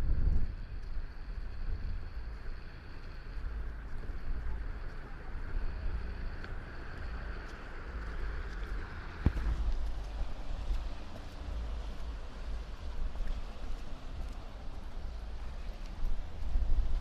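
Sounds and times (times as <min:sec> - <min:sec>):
high outdoor hiss: 0:00.0 - 0:17.0
wind rumbling on microphone: 0:00.0 - 0:17.0.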